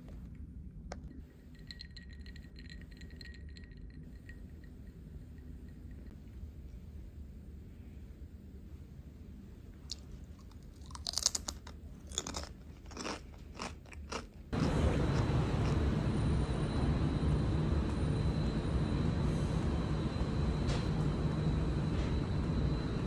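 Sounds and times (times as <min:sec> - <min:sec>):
crunching crispy snack: 0:09.9 - 0:15.8
steady noise with high whine: 0:14.6 - 0:23.0.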